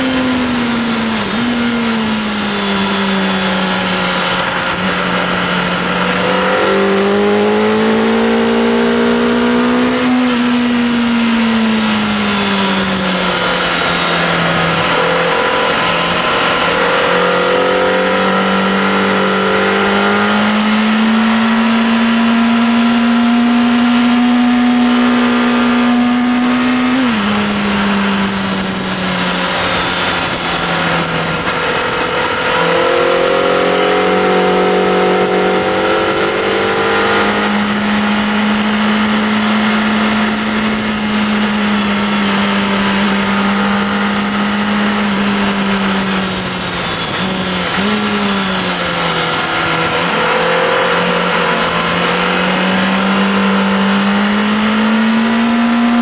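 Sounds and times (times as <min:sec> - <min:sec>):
motorcycle engine revving: 0:00.0 - 0:56.0
wind rush over microphone: 0:24.6 - 0:54.2.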